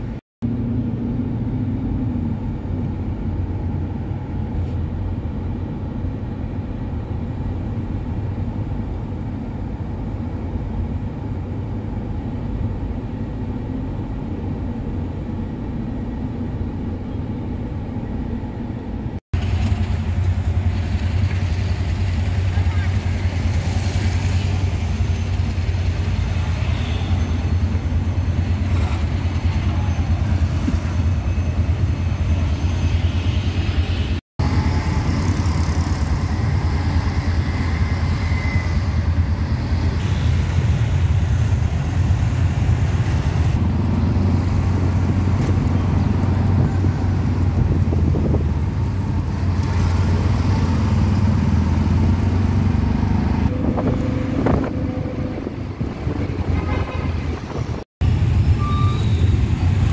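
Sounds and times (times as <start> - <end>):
low engine drone: 0.0 - 23.4, 50.3 - 59.0
road noise: 0.0 - 59.9.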